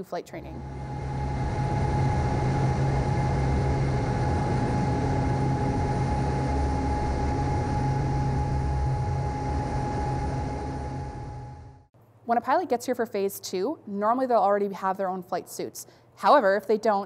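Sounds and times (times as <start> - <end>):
constant whine: 0.0 - 11.9
propeller engine drone: 0.0 - 11.9.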